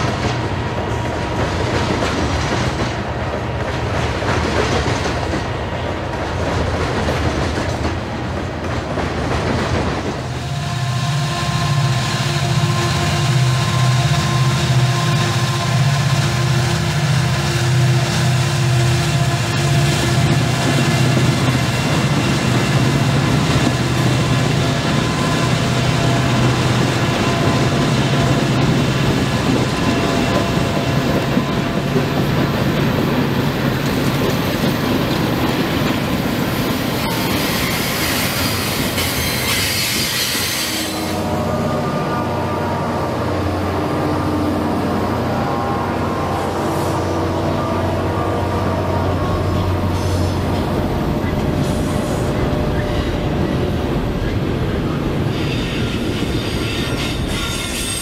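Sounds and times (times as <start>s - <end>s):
rail clatter: 0.0s - 10.4s
low train engine hum: 0.0s - 58.0s
locomotive engines droning: 10.1s - 58.0s
wheel squeal: 36.9s - 41.2s, 55.3s - 58.0s.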